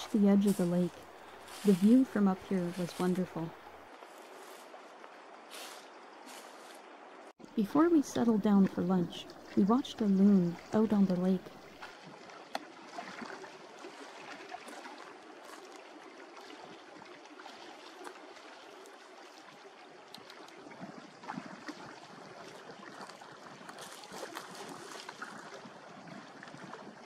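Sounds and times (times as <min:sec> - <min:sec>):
small waves lapping at shore: 0:00.0 - 0:27.0.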